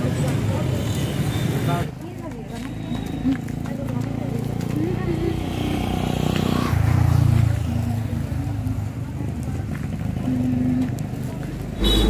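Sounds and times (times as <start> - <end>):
vehicle engine humming: 11.7 - 12.0.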